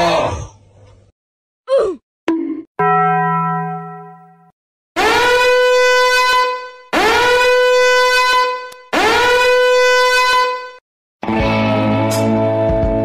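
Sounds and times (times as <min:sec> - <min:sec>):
horn-like siren blasts: 0:05.0 - 0:10.8.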